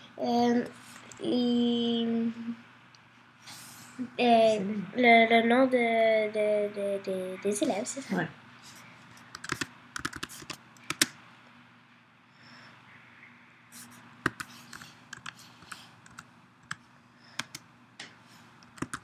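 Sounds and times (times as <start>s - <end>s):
computer keyboard typing: 9.3s - 11.1s, 14.2s - 16.8s, 17.4s - 17.6s, 18.6s - 19.0s.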